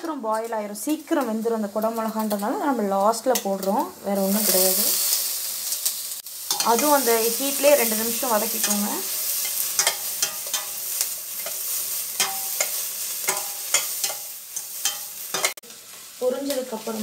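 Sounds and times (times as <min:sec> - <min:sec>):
vegetables sizzling in hot oil: 0:00.0 - 0:17.0
metal spatula scraping a pot: 0:08.6 - 0:15.6.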